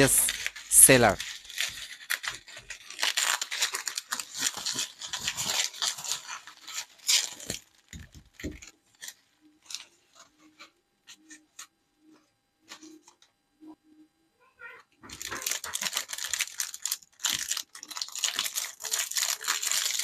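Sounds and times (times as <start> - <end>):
bubble wrap crinkling: 0.0 - 11.4, 15.0 - 20.0.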